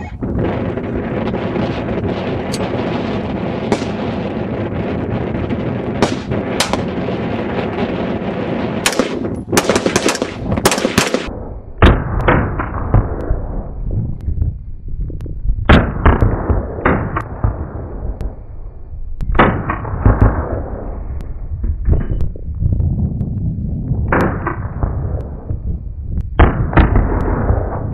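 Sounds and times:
wind on microphone: 0.0 - 27.9
rifle single shots: 3.6 - 4.4, 6.0 - 7.2, 8.8 - 12.8
pistol gunshots: 3.6 - 4.6, 6.0 - 7.4, 8.7 - 13.1.

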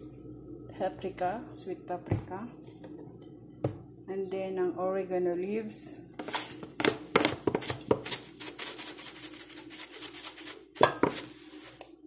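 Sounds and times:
faint steady hum: 0.0 - 12.0
spice shaker rattling into bowl: 6.2 - 11.8.

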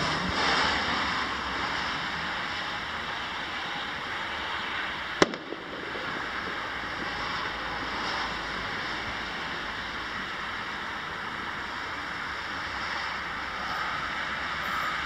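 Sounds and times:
rushing outdoor background noise: 0.0 - 15.0
sharp crack: 5.2 - 8.2.

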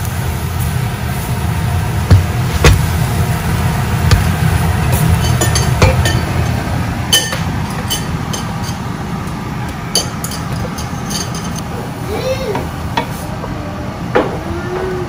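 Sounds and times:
cookware clicking and clinking: 5.0 - 8.8, 9.9 - 11.6.

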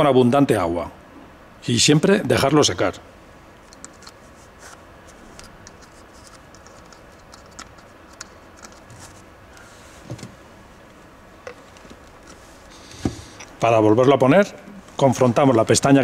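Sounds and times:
hands handling plastic parts: 3.6 - 10.4, 11.4 - 13.6.

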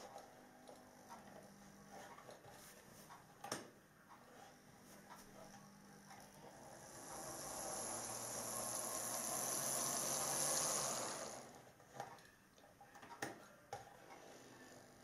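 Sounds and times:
model train whirring on track: 6.4 - 11.6.

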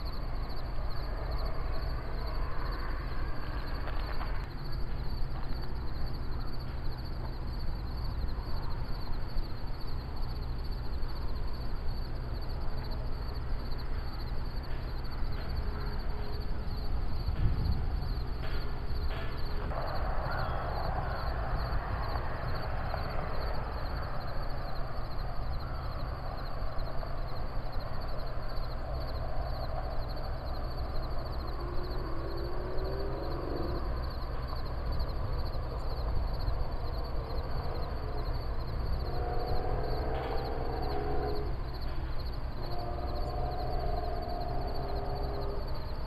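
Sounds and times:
steady low rumble: 0.0 - 39.5
high pulsing insect buzz: 30.9 - 46.0.

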